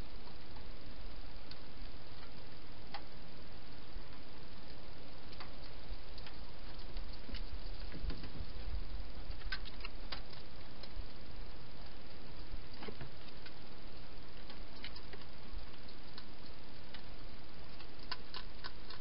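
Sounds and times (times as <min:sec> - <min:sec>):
soft low rumble: 0:00.0 - 0:19.0
steady hiss: 0:00.0 - 0:19.0
hedgehog chewing crunchily: 0:14.4 - 0:16.6, 0:17.7 - 0:19.0.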